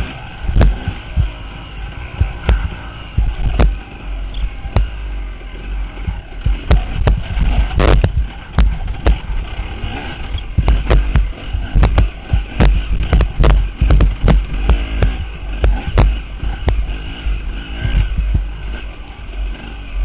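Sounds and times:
dirt bike engine rumble: 0.0s - 20.0s
sharp knocks and thumps: 0.5s - 1.4s, 2.2s - 3.8s, 4.4s - 5.0s, 6.0s - 16.9s.

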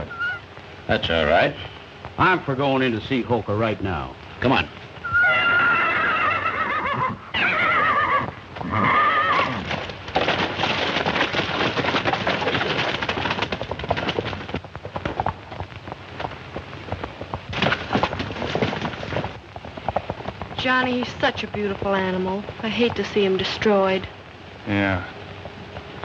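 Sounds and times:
horse whinnying: 0.0s - 0.5s, 5.0s - 10.0s
horses galloping hoofbeats: 0.0s - 26.0s.

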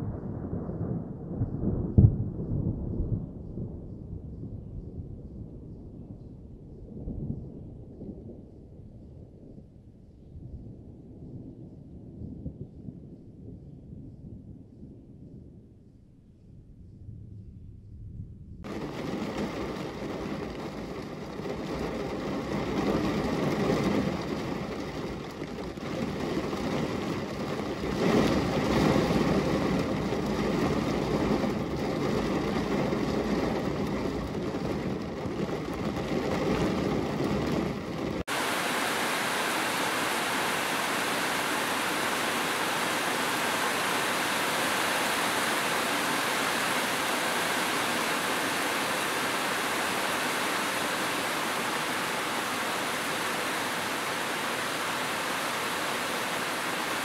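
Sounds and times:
heavy rain on metal roofs: 18.6s - 57.0s
rain on car windshield: 18.6s - 57.0s.

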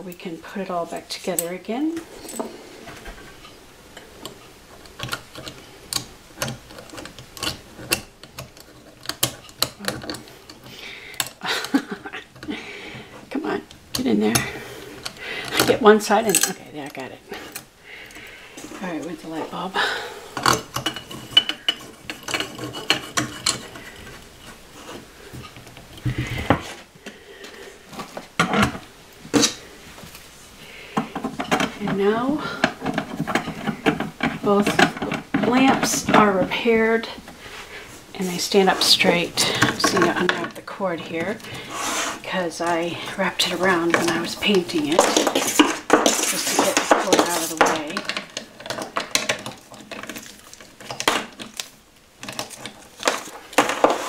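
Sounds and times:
lamp fittings clicking and rattling: 4.0s - 11.4s
lamp shade scraping: 20.4s - 26.9s, 33.0s - 49.0s.

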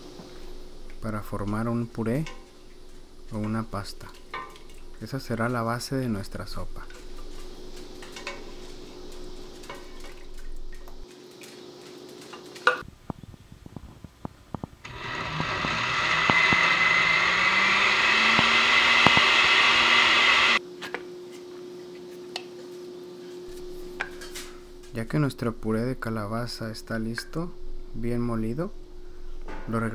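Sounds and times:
blender motor running: 14.9s - 20.6s.

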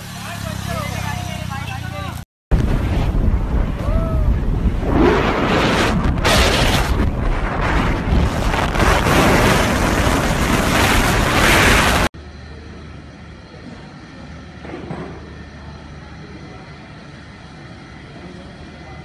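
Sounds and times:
wind buffeting microphone: 2.5s - 12.1s.

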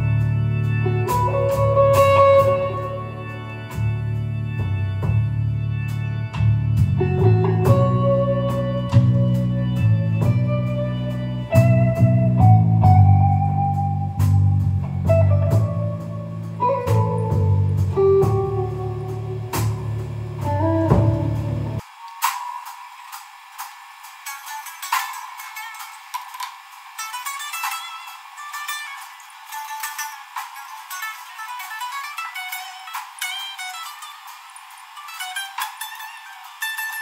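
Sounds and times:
low band accompaniment: 0.0s - 21.8s
electric guitar solo: 0.0s - 22.0s.

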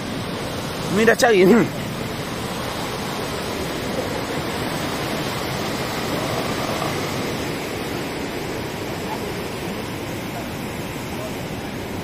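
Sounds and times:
river rushing over rocks: 0.0s - 12.0s.

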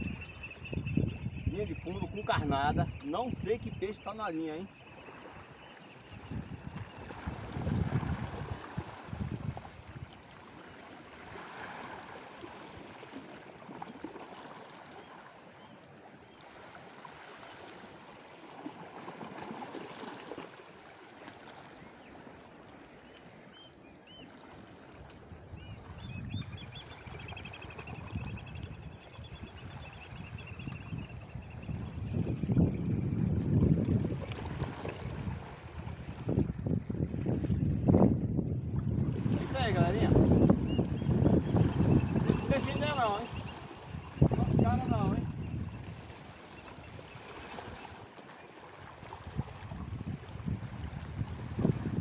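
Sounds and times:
wind gusts on microphone: 0.0s - 13.3s, 24.8s - 48.1s, 48.8s - 52.0s
waves lapping against rocky shore: 1.5s - 26.0s, 31.7s - 52.0s.

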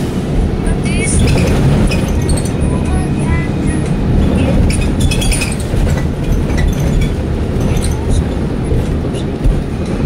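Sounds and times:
road noise on wet pavement: 0.0s - 10.0s
vehicle rumble from inside cabin: 0.0s - 10.0s
light rattles and clicks: 3.8s - 10.0s.

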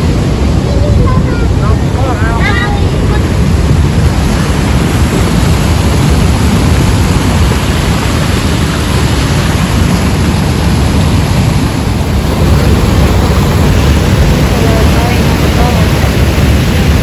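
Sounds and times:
waterfall roaring: 0.0s - 17.0s.

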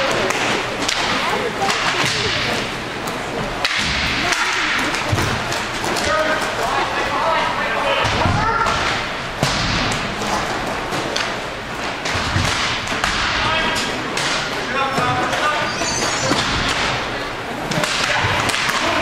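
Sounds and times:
sticks and puck clacking: 0.0s - 19.0s
sharp crack: 3.6s - 6.2s, 8.1s - 14.6s, 17.7s - 19.0s.

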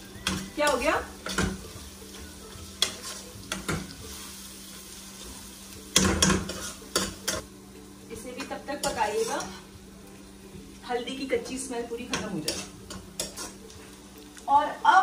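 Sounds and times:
onions sizzling in hot oil: 0.0s - 15.0s
spatula scraping a pan: 0.3s - 4.8s, 6.0s - 7.4s, 12.2s - 13.6s.

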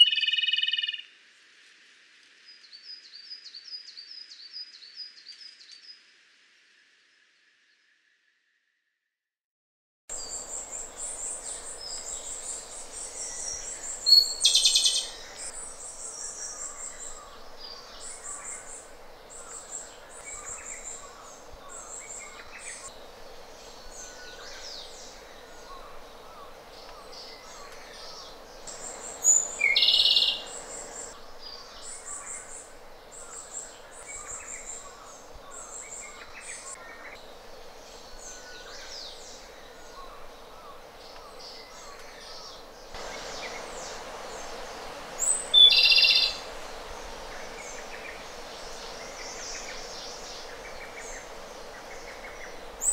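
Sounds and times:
steady background hiss: 0.1s - 8.2s, 10.1s - 52.9s
bird singing a fast trill: 45.2s - 46.4s.

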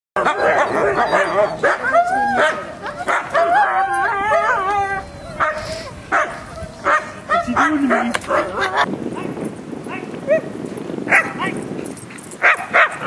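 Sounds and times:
dogs yelping and howling: 0.2s - 8.9s.

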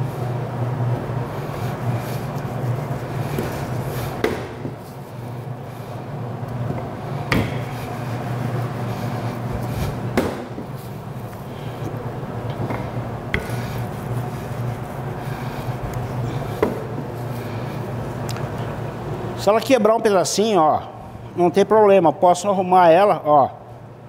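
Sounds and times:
rolling pin rolling dough: 1.3s - 5.9s, 7.0s - 11.9s, 13.3s - 17.8s.

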